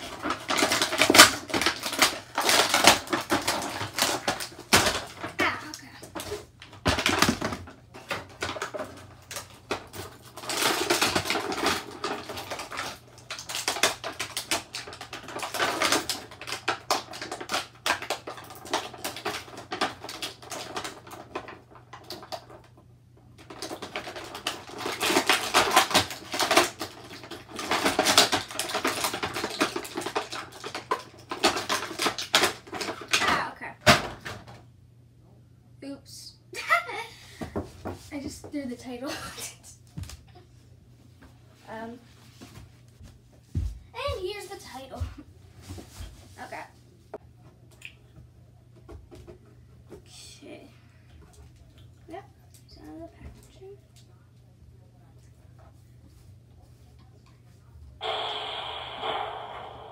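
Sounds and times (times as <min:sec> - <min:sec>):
plastic bag crinkling: 0:00.0 - 0:05.3, 0:08.4 - 0:22.4.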